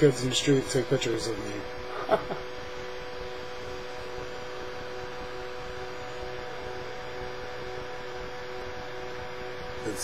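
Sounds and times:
constant hum: 0.0 - 10.0.

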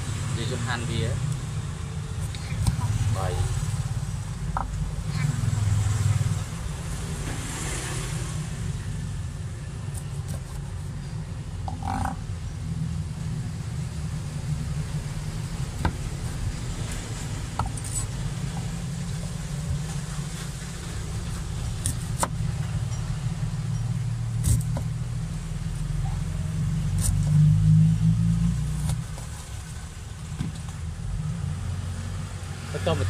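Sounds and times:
vehicle engine rumbling: 0.0 - 33.0
cleaver chopping on wooden board: 15.8 - 16.1.

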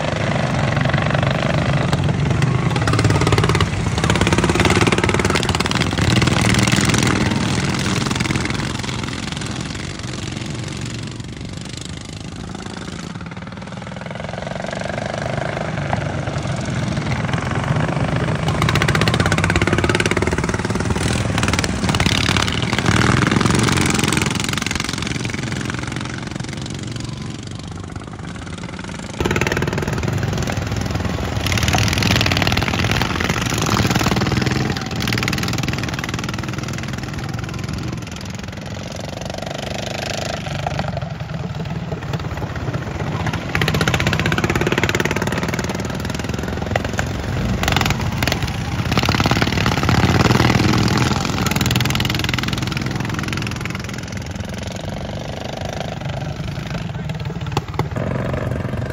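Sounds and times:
lawn mower engines revving: 0.0 - 58.9.

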